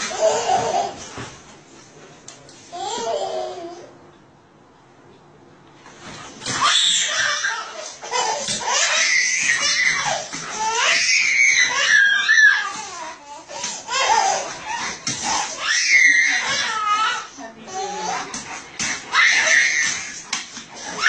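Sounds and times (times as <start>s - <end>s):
toddler squealing and crying: 6.5s - 13.2s, 13.9s - 18.2s, 19.1s - 20.2s.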